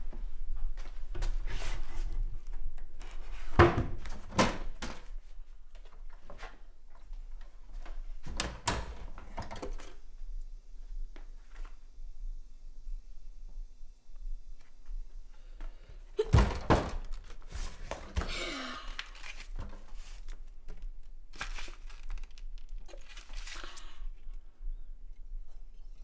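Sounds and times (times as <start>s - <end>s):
faint low hum: 4.9s - 26.0s
cupboard door thunks: 16.3s - 17.1s.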